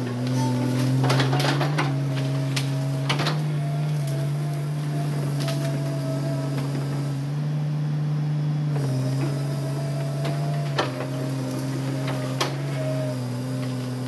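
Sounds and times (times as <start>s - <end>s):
excavator bucket clanking: 0.0s - 4.4s
excavator diesel engine under load: 0.0s - 14.0s.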